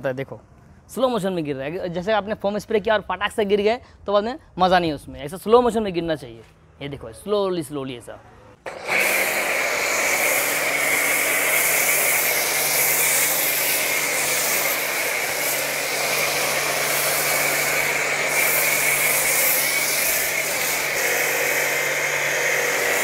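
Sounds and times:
pump motor hum: 0:08.7 - 0:23.0
foam spraying hiss: 0:09.0 - 0:23.0.

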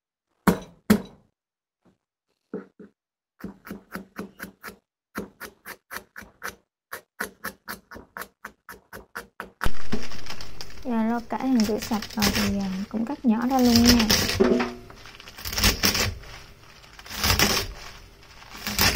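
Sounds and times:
knife chopping on wooden board: 0:00.4 - 0:01.2, 0:02.6 - 0:09.7.

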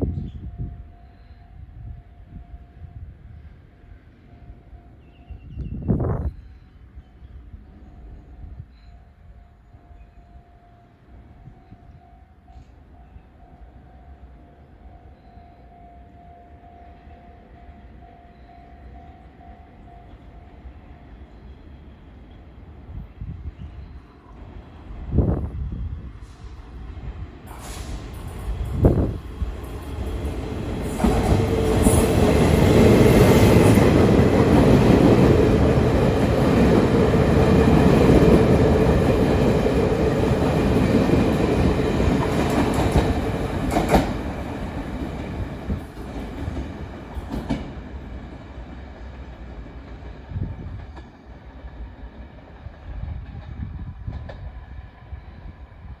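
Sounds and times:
train wheels rumbling on rail: 0:21.7 - 0:56.0.

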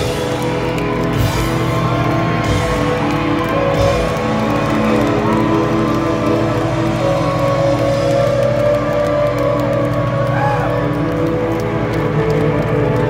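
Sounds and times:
live rock band playing: 0:00.0 - 0:10.1.

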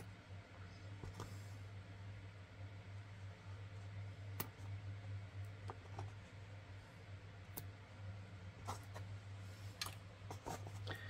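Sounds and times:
low steady hum: 0:00.0 - 0:11.0
scissors snipping thread: 0:04.3 - 0:04.6.

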